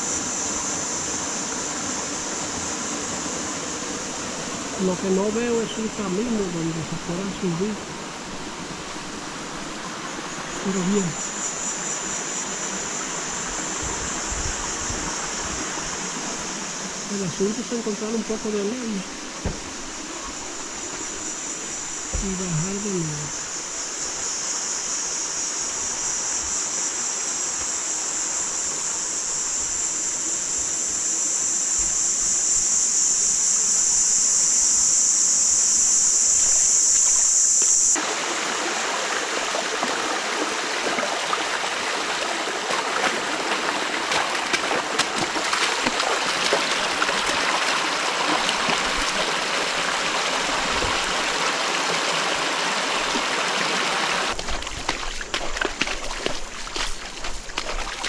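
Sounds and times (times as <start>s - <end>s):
high-pitched insect buzz: 0.0s - 40.1s, 43.6s - 58.0s
rushing river water: 38.0s - 58.0s
small water splashes: 38.0s - 58.0s.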